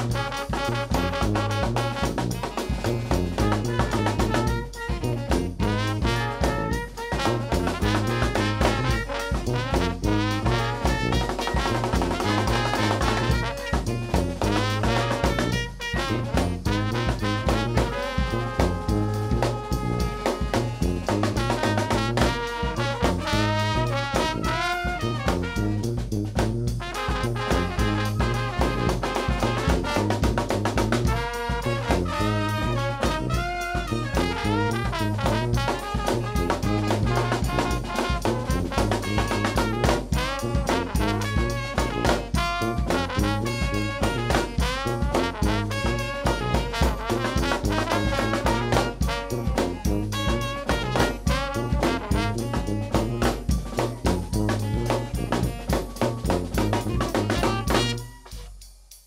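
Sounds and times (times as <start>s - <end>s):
sousaphone bass line: 0.0s - 58.5s
saxophone: 0.0s - 58.7s
trombone: 0.0s - 58.7s
bass drum: 0.0s - 59.0s
snare drum: 0.0s - 59.0s
trumpet: 0.0s - 59.0s.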